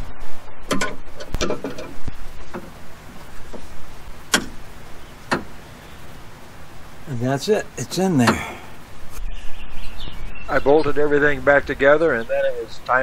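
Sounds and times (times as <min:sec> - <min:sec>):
sharp clicks and metal knocks: 0:00.7 - 0:02.8, 0:04.3 - 0:05.6.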